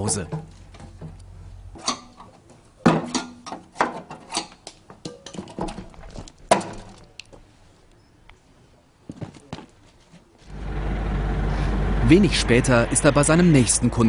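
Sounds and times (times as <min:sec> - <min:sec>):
metal knocks and clanks: 0:00.0 - 0:01.2, 0:01.8 - 0:07.0.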